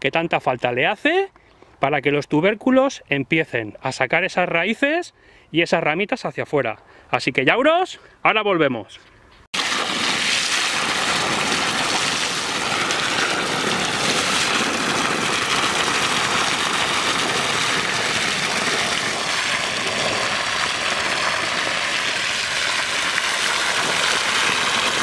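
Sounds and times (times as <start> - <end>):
water running from a hose: 9.6 - 25.0.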